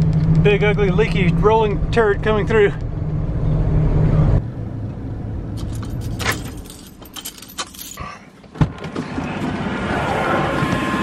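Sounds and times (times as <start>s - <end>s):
engine and road noise from cab: 0.0s - 11.0s
keys jangling on a ring: 5.6s - 8.2s.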